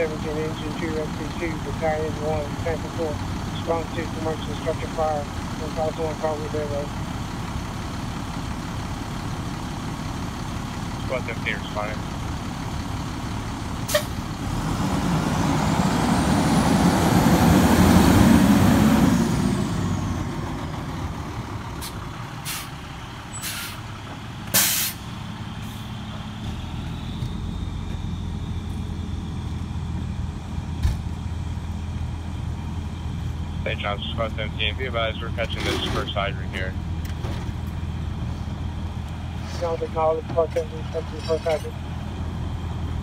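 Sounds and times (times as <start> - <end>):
fire engine diesel engine: 0.0 - 43.0
air brakes hissing: 13.9 - 14.2, 21.8 - 23.9, 24.5 - 25.9.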